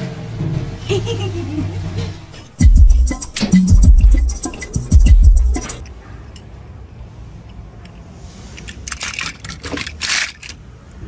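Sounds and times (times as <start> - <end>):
toy cars rattling in plastic basket: 8.6 - 10.7.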